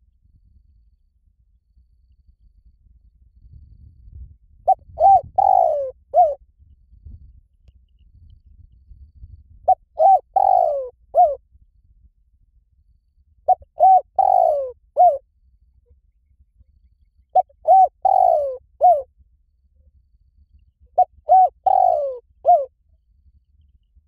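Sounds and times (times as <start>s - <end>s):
dove cooing: 4.7s - 6.4s, 9.7s - 11.4s, 13.5s - 15.2s, 17.4s - 19.1s, 21.0s - 22.7s.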